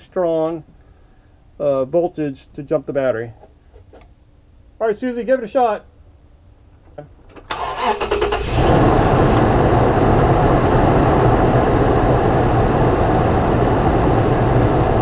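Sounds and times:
car engine cranking and running: 7.4 - 12.8.

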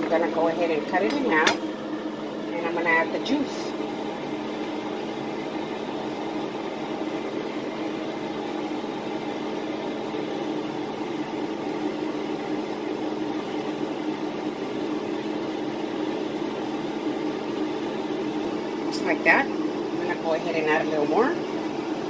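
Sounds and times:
fan humming: 0.0 - 22.0.

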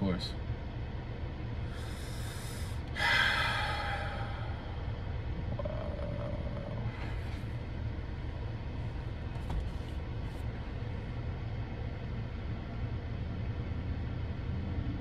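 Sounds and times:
car cabin low rumble: 0.0 - 15.0.

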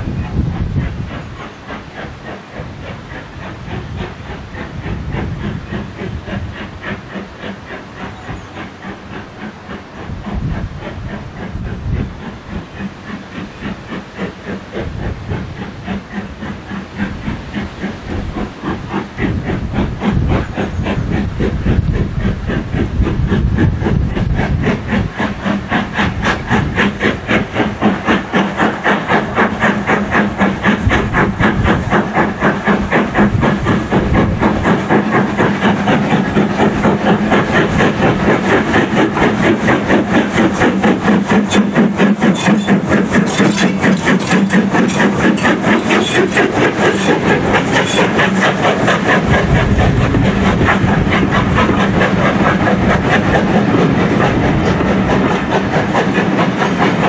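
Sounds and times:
steam locomotive exhaust beating: 0.0 - 57.0
coaches rumbling and clattering: 30.8 - 56.9.

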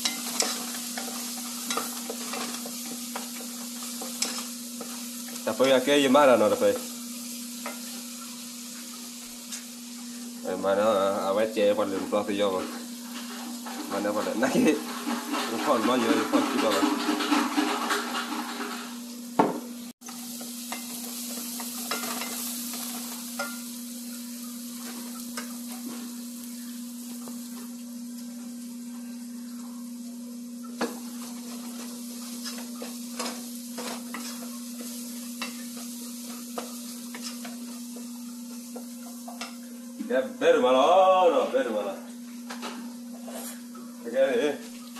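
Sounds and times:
wooden spoon scraping and tapping pan: 0.0 - 5.8, 30.7 - 39.7
aromatics sizzling in oil: 0.0 - 44.9.

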